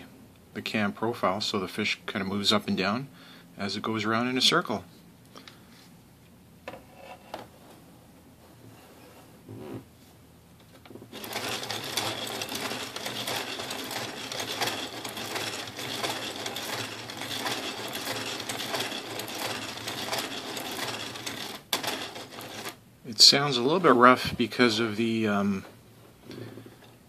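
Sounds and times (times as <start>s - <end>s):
plastic gears clattering: 11.1s - 22.8s.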